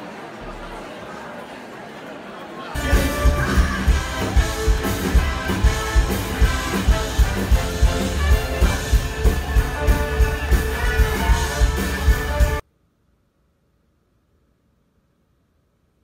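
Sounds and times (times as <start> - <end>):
fast drum beat: 2.8 - 12.6
loud rock music: 2.8 - 12.6.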